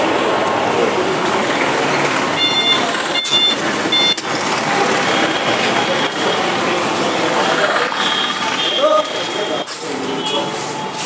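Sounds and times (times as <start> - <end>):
busy road traffic: 0.0 - 11.0
short high-pitched beeps: 2.4 - 4.3.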